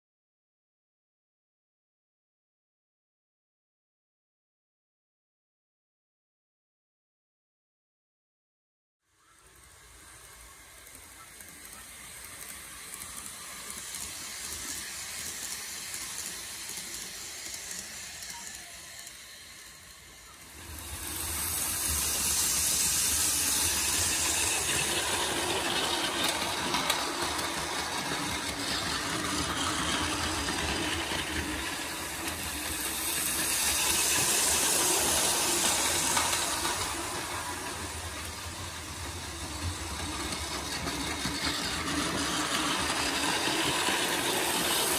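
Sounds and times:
model train whirring: 9.1 - 44.9.

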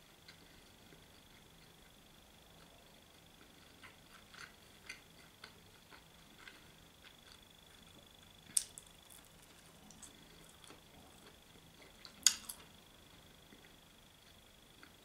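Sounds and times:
faint high whine: 0.0 - 15.0
person chewing food: 0.2 - 15.0.

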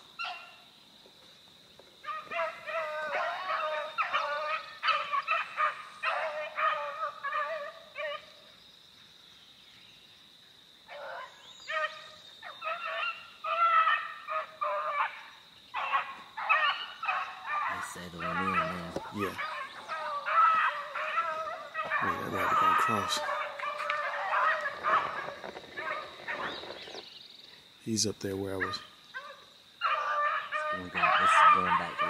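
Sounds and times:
beagles baying: 0.0 - 0.6, 2.0 - 8.5, 10.9 - 27.2, 27.9 - 32.0.

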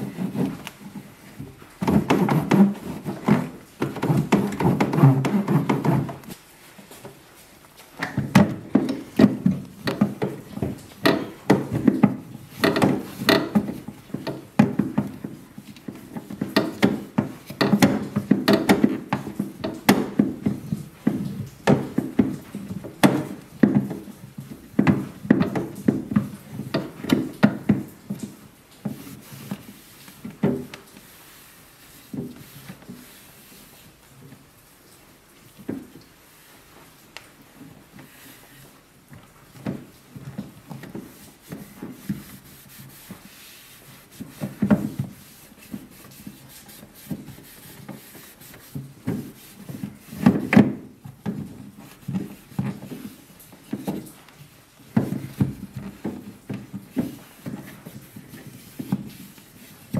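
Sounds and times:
towel rubbing on plastic: 0.0 - 14.4, 24.9 - 34.1, 39.4 - 59.9.

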